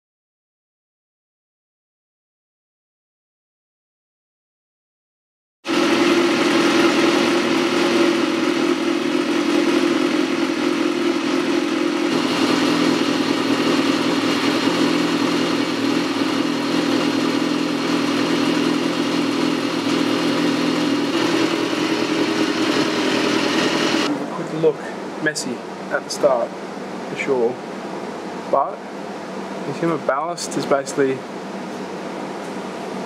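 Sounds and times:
motorcycle engine idling: 5.7 - 24.1.

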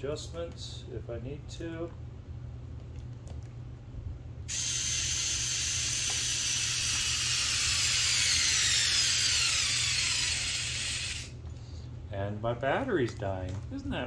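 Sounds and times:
cordless drill driving a screw: 4.5 - 11.3.

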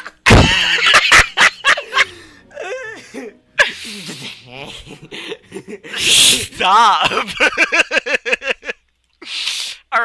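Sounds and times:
people laughing hard: 0.0 - 8.8
sharp burst of breath: 9.2 - 9.9.

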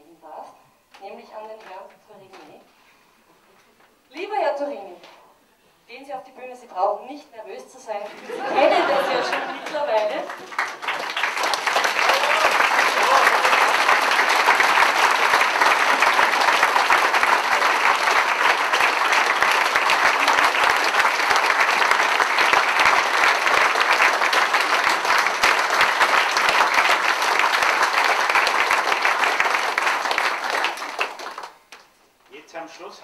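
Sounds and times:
audience applauding: 8.3 - 31.9.

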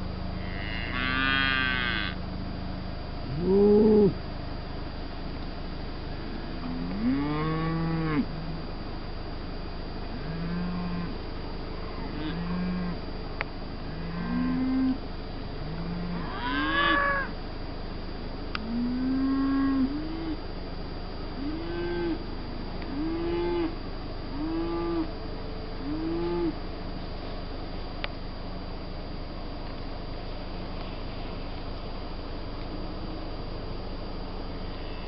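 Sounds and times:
calf mooing: 0.4 - 2.2, 6.9 - 8.3, 15.7 - 17.3.

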